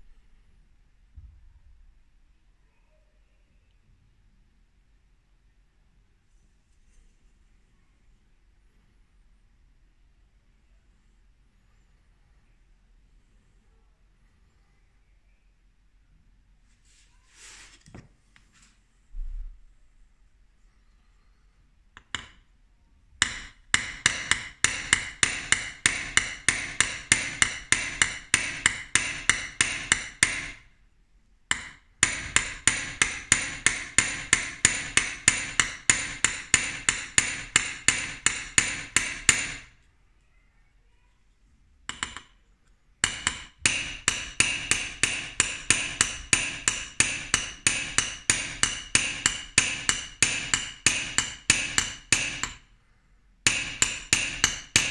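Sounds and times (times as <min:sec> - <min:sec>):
hammer tapping on metal blade: 0:22.0 - 0:22.4, 0:23.2 - 0:30.6, 0:31.5 - 0:39.7, 0:41.9 - 0:42.4, 0:43.0 - 0:52.7, 0:53.4 - 0:54.9.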